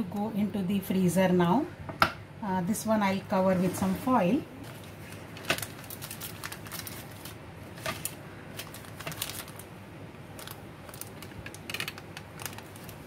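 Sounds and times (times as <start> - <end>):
aluminium foil crinkling: 4.6 - 13.0.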